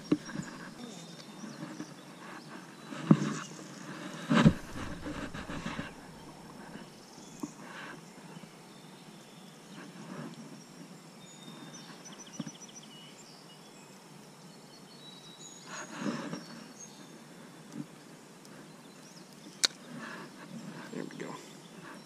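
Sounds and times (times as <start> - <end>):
handling knocks and rustle: 4.1 - 6.9.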